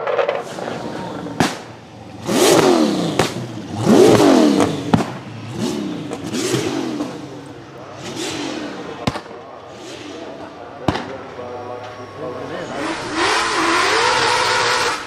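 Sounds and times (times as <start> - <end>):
car engine revving: 0.0 - 11.3, 12.0 - 15.0
sharp cracks: 1.3 - 5.4, 9.0 - 9.4.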